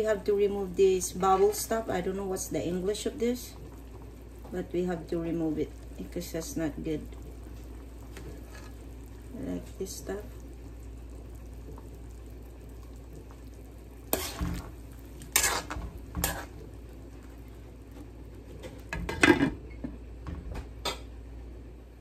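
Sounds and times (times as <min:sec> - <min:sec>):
soup boiling: 0:00.0 - 0:21.9
metal spoon scraping a pan: 0:08.4 - 0:08.8, 0:14.1 - 0:16.6.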